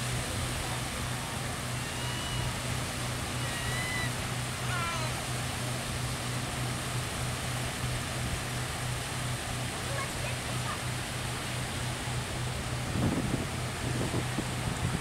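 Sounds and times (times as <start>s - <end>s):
waves washing onto rocky shore: 0.0s - 15.0s
faint high calls: 3.3s - 5.2s
wind noise: 12.8s - 15.0s.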